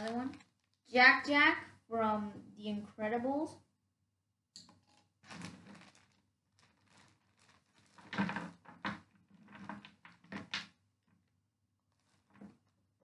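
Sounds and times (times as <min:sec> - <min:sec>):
plastic bag rustling and crinkling: 0:00.0 - 0:00.8, 0:05.2 - 0:10.6, 0:11.9 - 0:12.7.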